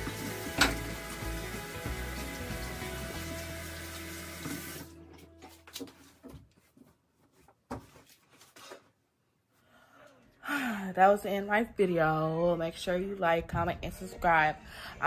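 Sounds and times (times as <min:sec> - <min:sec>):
tap water running into sink: 0:00.0 - 0:05.0.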